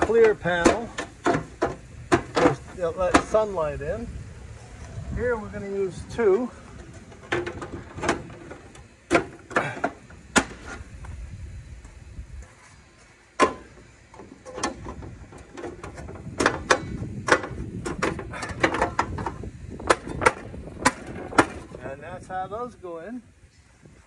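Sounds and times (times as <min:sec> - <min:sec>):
metal panels clacking and rattling: 0:00.0 - 0:03.6, 0:06.2 - 0:10.7, 0:13.4 - 0:21.8.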